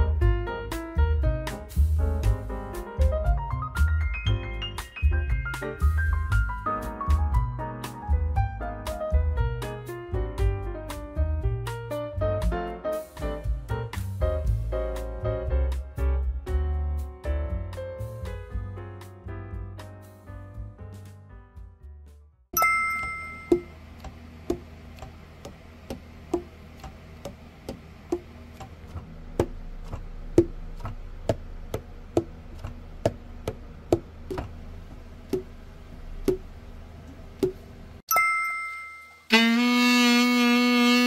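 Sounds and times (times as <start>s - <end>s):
saxophone sustained note: 39.3s - 41.0s.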